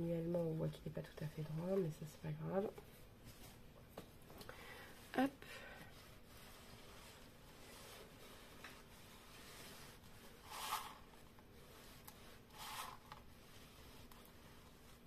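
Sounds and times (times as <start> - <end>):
cloth rubbing on plastic: 4.9 - 15.0.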